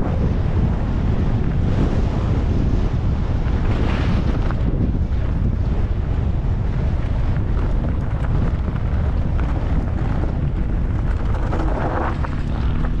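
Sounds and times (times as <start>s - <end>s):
wind buffeting microphone: 0.0s - 13.0s
bike clicks and rattles: 3.4s - 13.0s.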